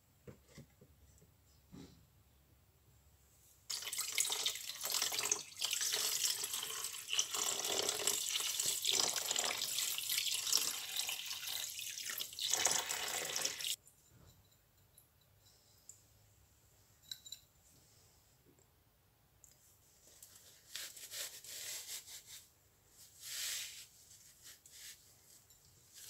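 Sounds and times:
liquid pouring and splashing: 3.7 - 13.8.

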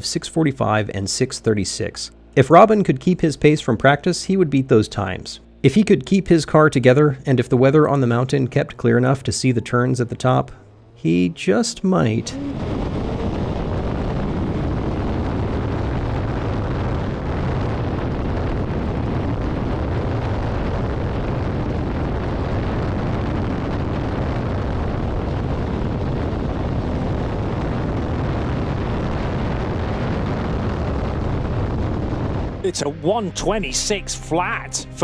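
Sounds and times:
race car engine running hard: 10.0 - 23.0
wind rush on microphone: 12.2 - 32.6.

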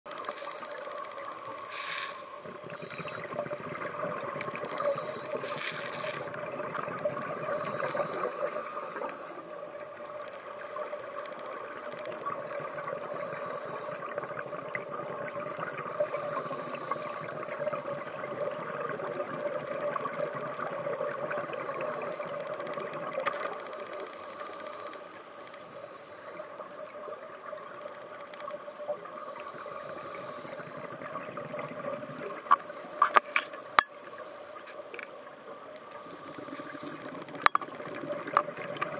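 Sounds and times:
underwater droning hum: 0.1 - 38.9
short hissing bursts: 1.4 - 3.5, 4.7 - 6.3, 7.5 - 9.4, 13.1 - 14.1.

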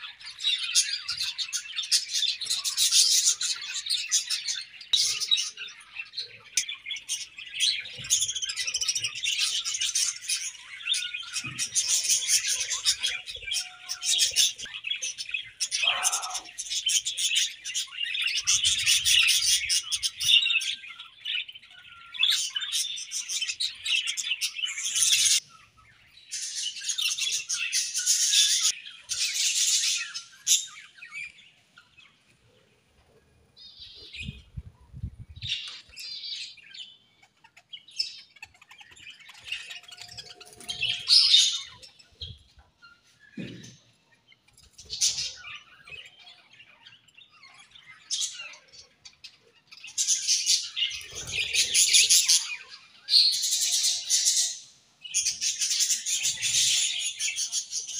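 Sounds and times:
budgerigars chattering and chirping: 35.5 - 57.9.

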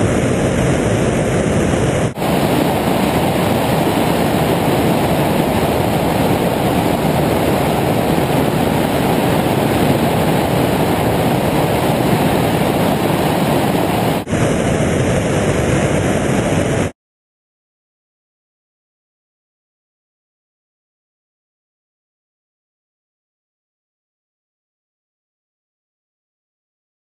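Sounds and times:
wind roaring over camera: 0.0 - 17.0.

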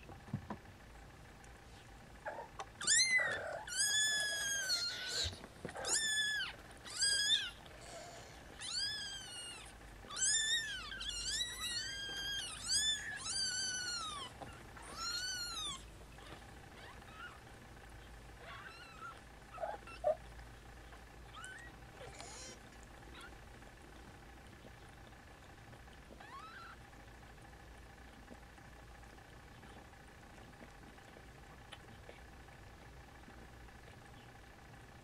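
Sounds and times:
kittens mewing: 2.2 - 17.6, 18.4 - 20.3, 21.2 - 23.4, 26.1 - 26.9.

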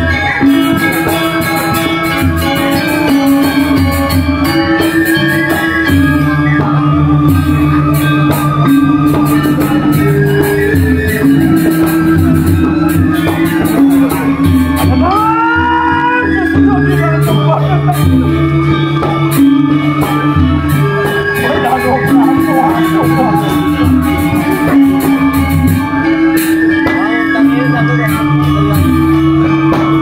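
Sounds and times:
gamelan playing: 0.0 - 30.0.

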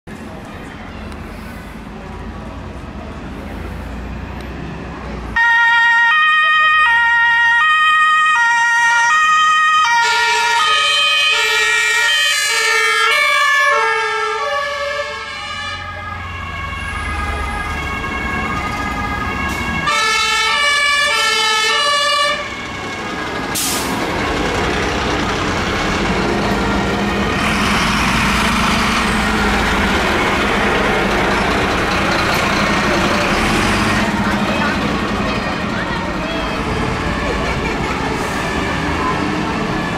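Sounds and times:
two-tone fire engine sirens: 5.3 - 39.9
diesel truck engines running: 6.4 - 39.9.

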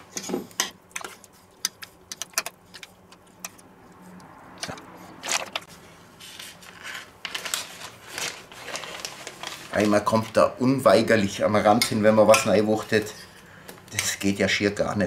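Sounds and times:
plastic bag crinkling: 6.4 - 10.5.

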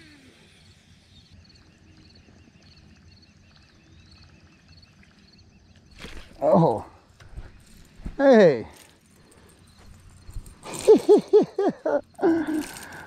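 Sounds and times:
distant bird chirps: 0.0 - 8.2.

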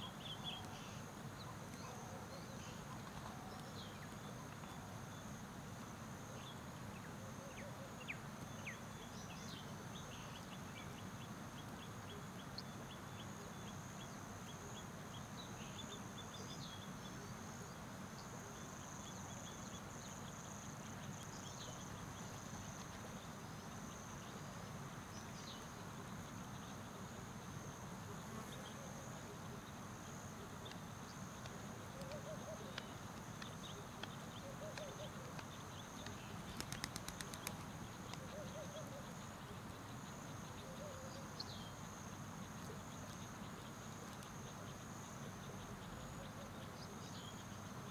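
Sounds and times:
low hiss: 0.0 - 47.9
quick ticking calls: 31.4 - 38.3.

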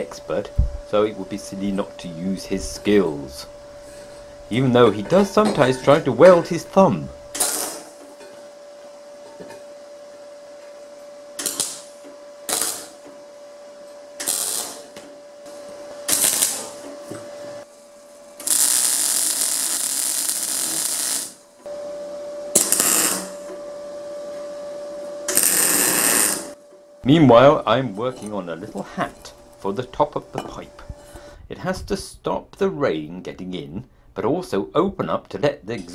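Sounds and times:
steady hum: 0.0 - 34.8
welder arc crackling: 4.4 - 8.0, 11.4 - 13.1, 14.2 - 17.0, 17.6 - 21.6, 22.6 - 23.5, 25.2 - 27.9.

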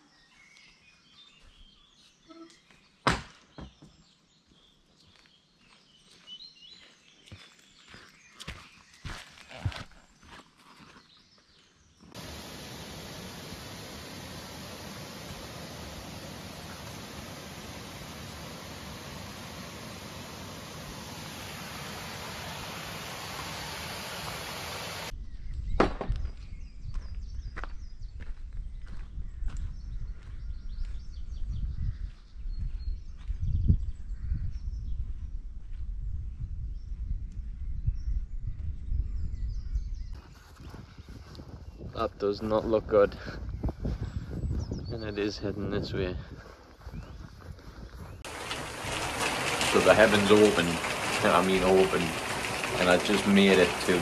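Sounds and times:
birds singing: 0.0 - 35.4, 36.3 - 54.0
footsteps on a farm track: 0.4 - 12.2, 26.1 - 37.2, 39.7 - 54.0
sharp knock: 3.1 - 3.3
water pouring over a weir: 12.2 - 25.1, 48.2 - 54.0.

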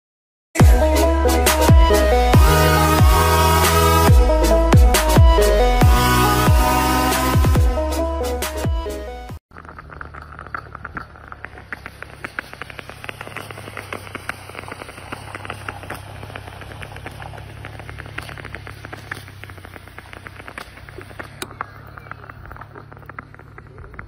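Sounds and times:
crackling and ticking: 9.5 - 24.0
low hum: 9.5 - 24.0
steady hiss: 11.5 - 24.0.

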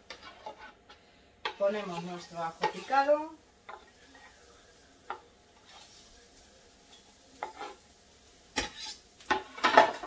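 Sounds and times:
knife scraping on cutting board: 0.0 - 2.0, 3.7 - 4.4, 5.6 - 6.0, 7.4 - 7.8, 8.6 - 9.8
faint sizzle in oil: 0.0 - 10.0.

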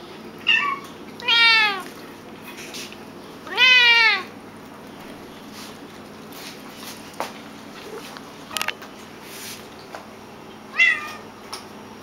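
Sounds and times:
cat meowing: 0.5 - 1.9, 3.5 - 4.3, 10.7 - 11.3.

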